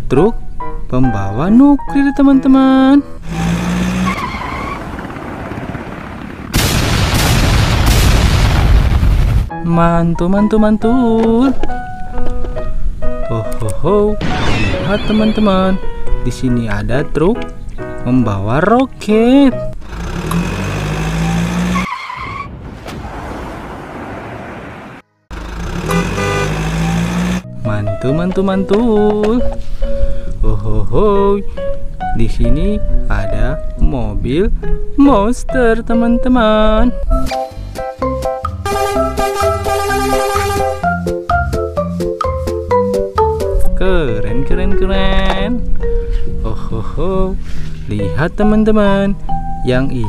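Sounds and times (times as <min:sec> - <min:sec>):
rushing vehicle noise: 0:03.2 - 0:06.7, 0:19.8 - 0:27.6
cartoon tyre screech: 0:03.3 - 0:05.0, 0:14.2 - 0:15.7, 0:19.8 - 0:22.6
loud rumbling explosion with cracks: 0:04.8 - 0:09.5.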